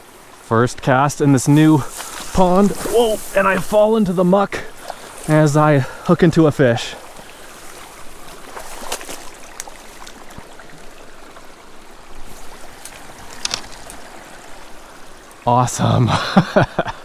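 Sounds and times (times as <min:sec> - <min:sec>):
pond water sloshing: 0:01.2 - 0:15.5
fish splashing: 0:06.9 - 0:11.4.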